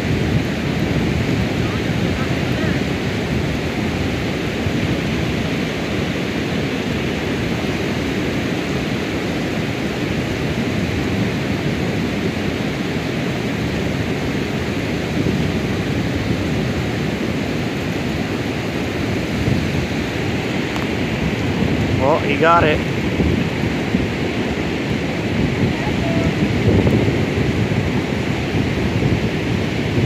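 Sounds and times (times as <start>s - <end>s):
river rapids rushing: 0.0s - 30.0s.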